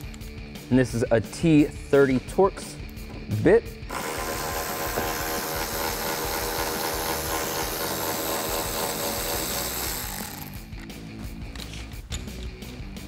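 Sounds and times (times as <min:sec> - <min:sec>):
cordless power driver running: 0:03.9 - 0:10.6.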